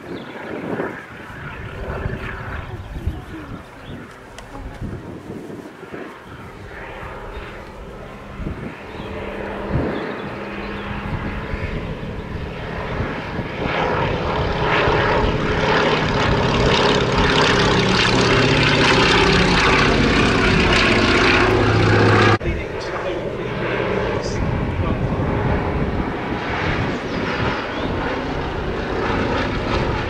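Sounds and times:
propeller plane engine in flight: 0.0s - 30.0s.

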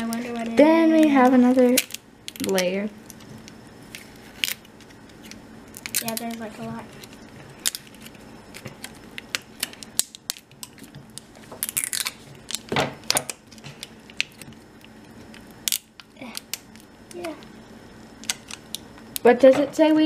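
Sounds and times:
plastic wrapping crinkling and tearing: 3.9s - 16.9s.

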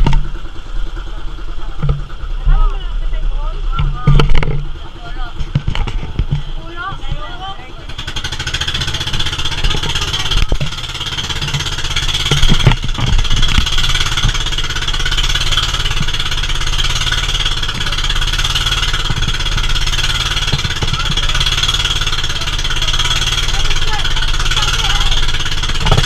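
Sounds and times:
low thumps: 0.0s - 22.8s
boat engine running: 0.0s - 26.0s.

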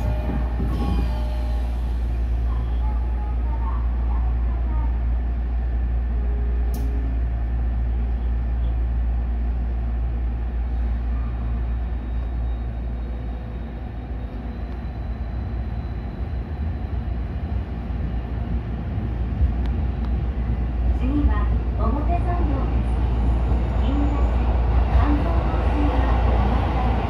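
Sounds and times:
subway train hum and rumble: 0.0s - 27.0s
sharp click: 6.7s - 7.0s.

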